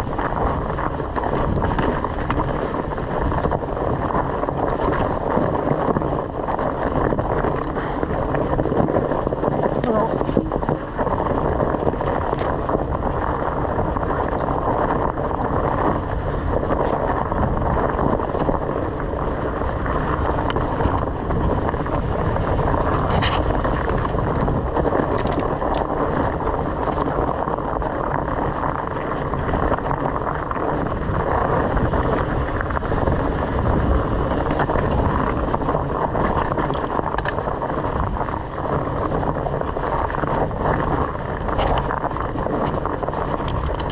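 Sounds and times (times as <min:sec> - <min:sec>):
bicycle tyres rumbling on dirt: 0:00.0 - 0:43.9
wind buffeting microphone: 0:00.0 - 0:43.9
bike clicks and knocks: 0:23.0 - 0:43.9.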